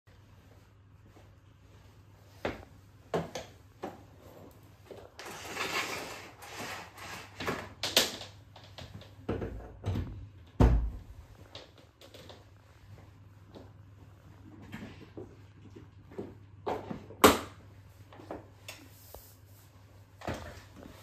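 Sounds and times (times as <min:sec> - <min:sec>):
rustling and scraping: 0:03.8 - 0:07.8.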